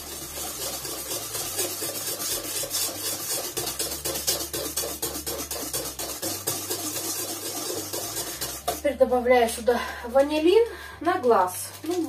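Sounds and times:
utensil scraping metal bowl: 0.0s - 9.6s.

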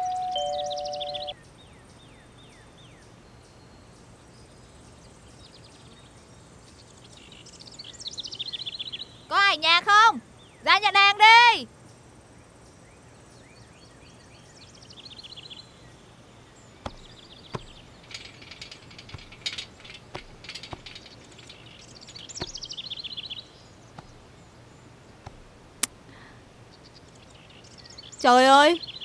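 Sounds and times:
bird trilling: 0.0s - 1.4s, 16.9s - 24.4s
clicks and rattles at metal gate: 16.9s - 22.9s.

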